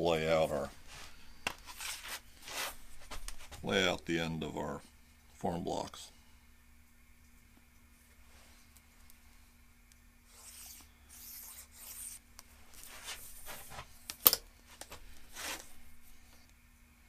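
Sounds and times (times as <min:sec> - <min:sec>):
steel rule scraping metal sheet: 0:10.3 - 0:12.2.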